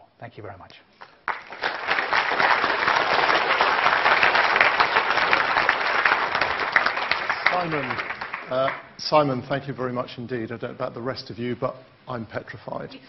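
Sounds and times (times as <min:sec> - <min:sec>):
audience applauding: 0:01.0 - 0:09.0.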